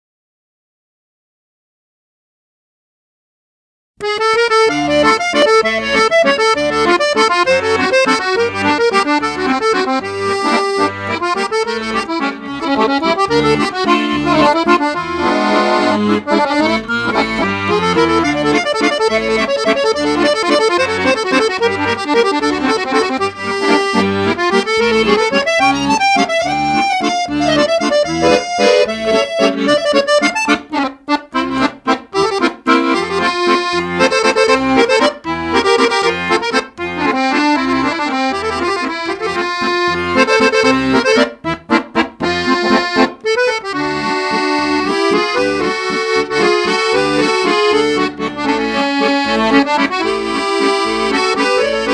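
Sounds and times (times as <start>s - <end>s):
accordion music: 4.0s - 51.9s
short clipped chords: 4.0s - 51.9s.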